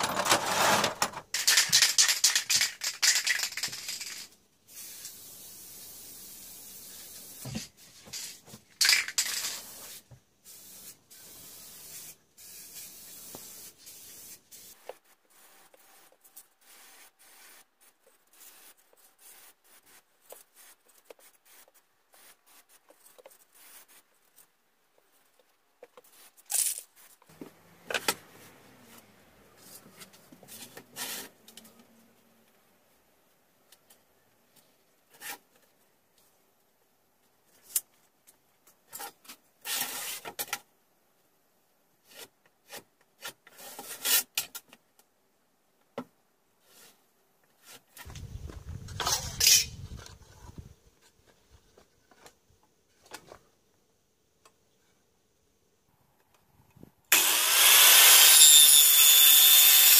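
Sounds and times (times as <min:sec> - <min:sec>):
spray paint can hissing: 0:01.4 - 0:07.4, 0:08.8 - 0:15.5, 0:16.7 - 0:17.6.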